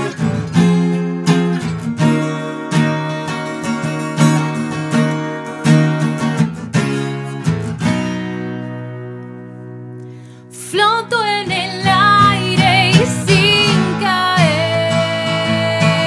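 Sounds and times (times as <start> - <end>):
strummed acoustic guitar: 0.0 - 16.0
woman singing with vibrato: 10.5 - 16.0.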